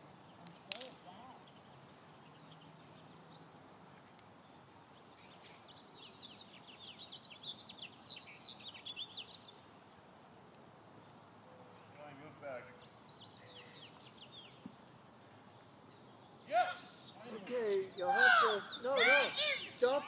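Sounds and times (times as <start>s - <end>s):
faint outdoor background noise: 0.0s - 20.0s
songbird chirping: 0.0s - 20.0s.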